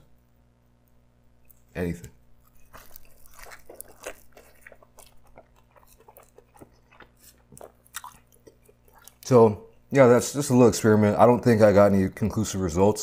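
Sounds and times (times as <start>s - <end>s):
person chewing food: 2.4s - 9.9s.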